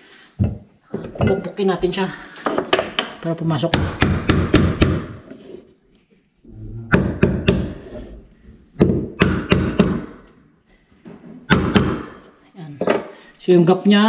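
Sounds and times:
hammer tapping stair tread: 8.8 - 10.3, 11.5 - 12.2.

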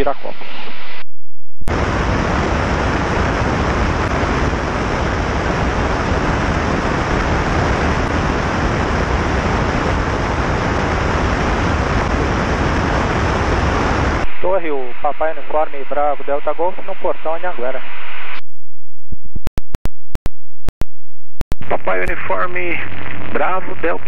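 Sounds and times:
wind roaring over microphone: 1.7 - 14.3.

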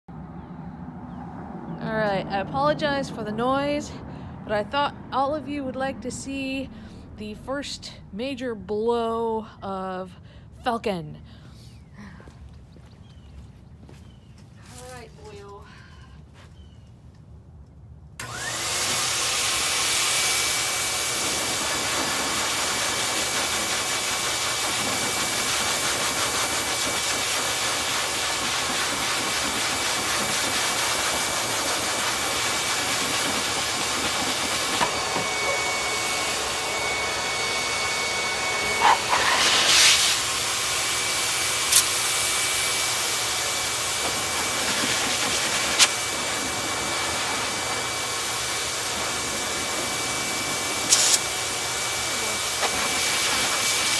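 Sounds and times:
dryer blowing air with motor whine: 18.2 - 53.9.

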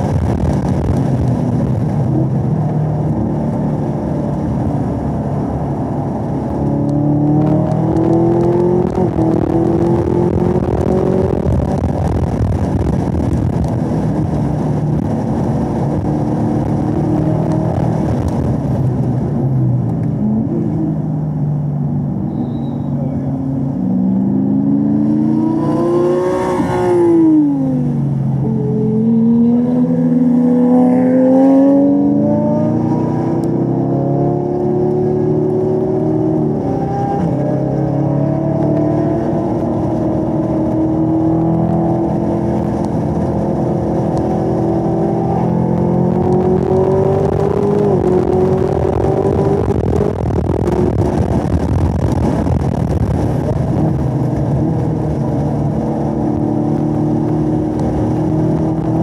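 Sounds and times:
car engine running hard: 0.0 - 59.0.

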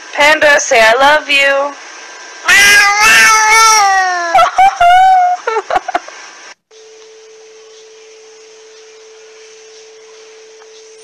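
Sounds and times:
faint steady hum: 0.0 - 11.0
cat meowing: 2.5 - 4.3.

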